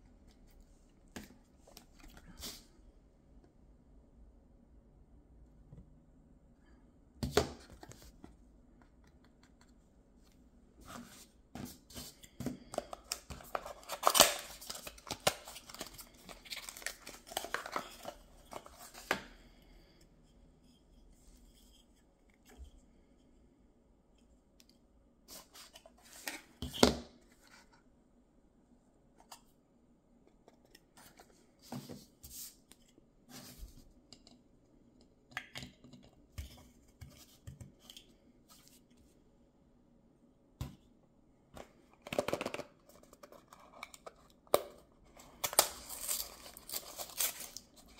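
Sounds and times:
packaging tearing and crinkling: 13.6s - 18.2s, 45.4s - 47.7s.

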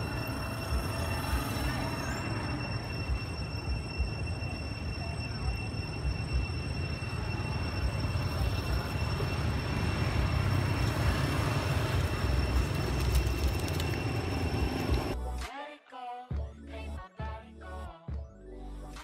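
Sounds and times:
faint high whine: 0.0s - 15.2s.

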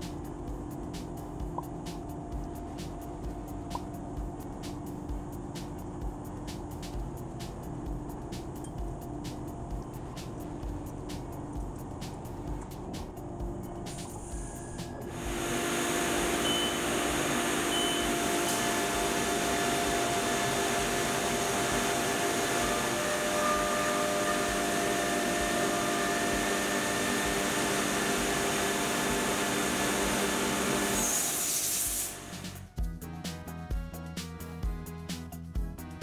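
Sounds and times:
milling machine cutting whine: 14.0s - 32.4s
coolant spray hiss: 15.1s - 22.6s, 29.5s - 32.4s.

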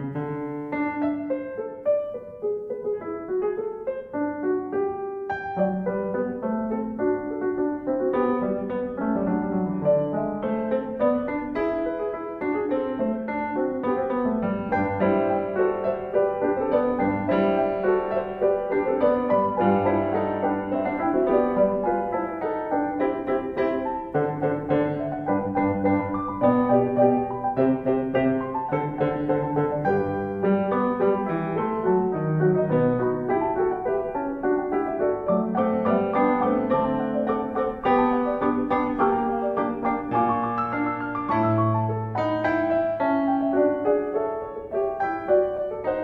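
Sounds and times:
piano music: 0.0s - 46.0s.

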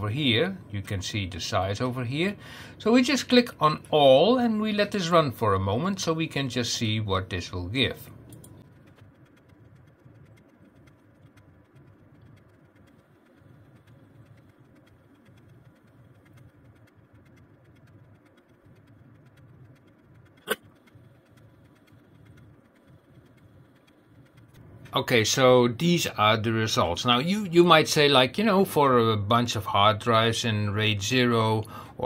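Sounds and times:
faint low rumble with crackle: 0.0s - 32.0s
sharp click: 8.2s - 24.6s.

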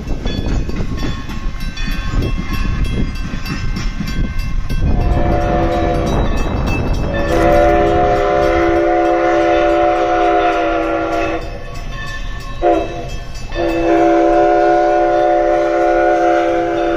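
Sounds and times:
chime train whistle blasts: 4.7s - 16.9s.

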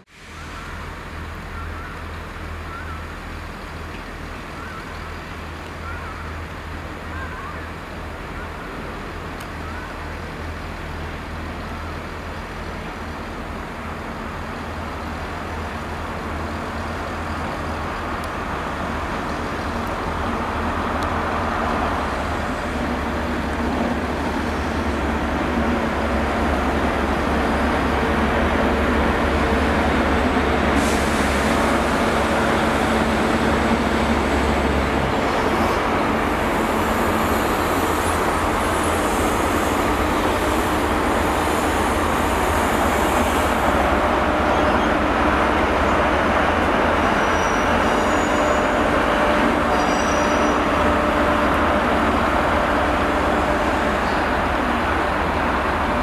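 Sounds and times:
diesel train engine drone: 0.0s - 56.0s
wheel and rail noise: 0.0s - 56.0s
wheels squealing on rail: 21.3s - 56.0s.

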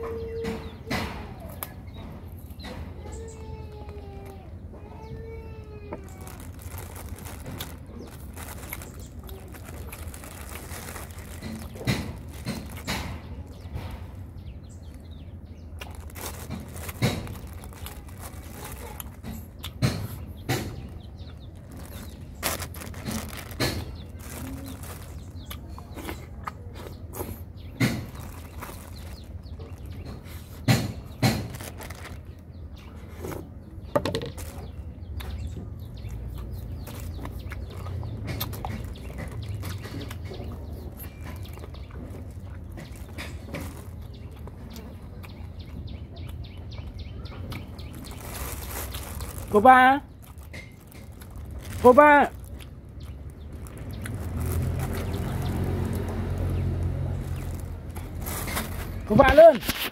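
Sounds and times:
plastic bag handling: 5.1s - 14.3s, 15.7s - 26.2s, 27.2s - 32.5s, 33.9s - 34.8s, 40.5s - 44.6s, 47.6s - 59.9s
chewing: 35.2s - 49.3s, 52.4s - 59.0s.

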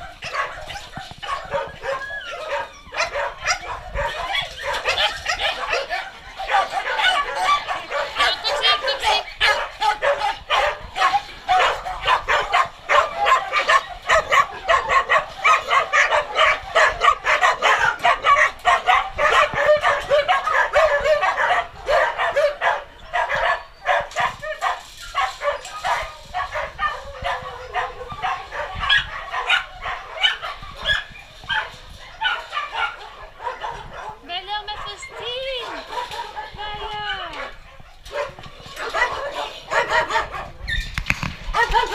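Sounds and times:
many dogs barking and yipping: 0.0s - 41.9s.

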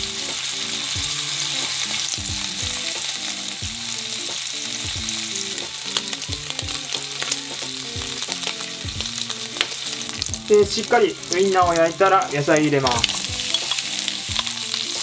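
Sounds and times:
sausages sizzling in oil: 0.0s - 15.0s
chopsticks clicking against pan: 12.6s - 14.8s.

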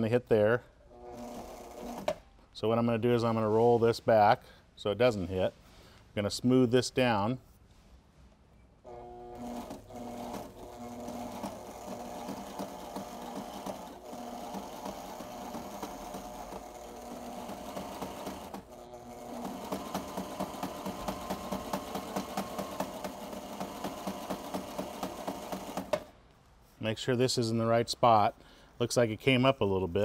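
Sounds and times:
sewing machine motor hum: 0.9s - 2.2s, 8.9s - 26.1s.

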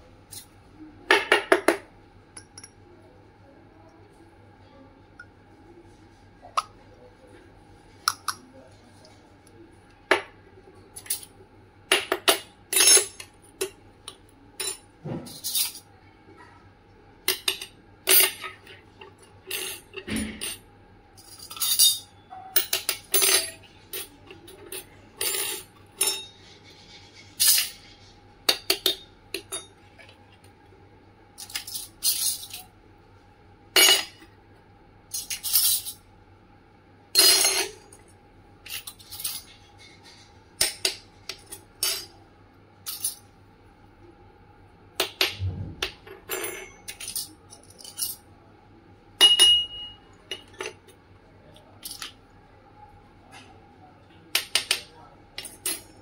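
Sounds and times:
toy metal utensils clinking: 46.3s - 48.2s, 51.8s - 52.2s.

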